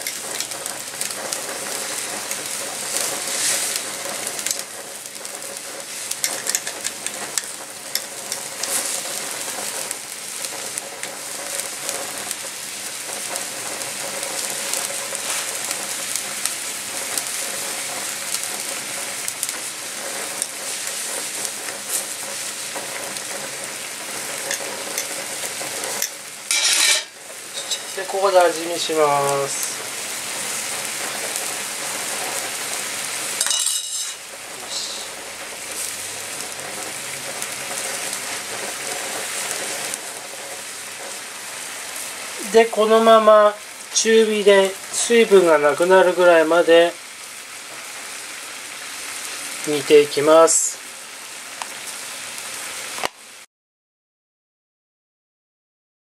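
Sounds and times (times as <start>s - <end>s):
broth bubbling and sizzling in a pan: 0.0s - 53.5s
metal tongs scraping a pan: 2.2s - 12.4s, 24.1s - 25.2s, 25.8s - 29.5s, 33.3s - 35.0s.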